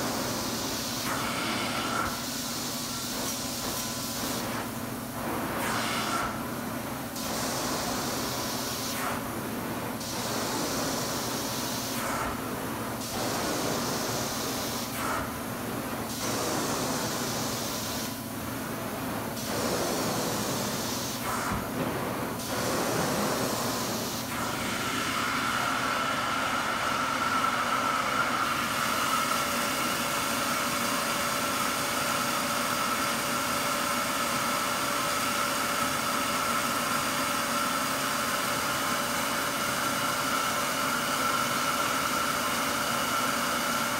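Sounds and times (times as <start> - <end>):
carpet cleaning wand spray and suction: 0.0 - 4.6, 5.4 - 6.4, 7.2 - 9.2, 10.0 - 12.4, 13.0 - 15.3, 16.1 - 18.2, 19.4 - 25.4.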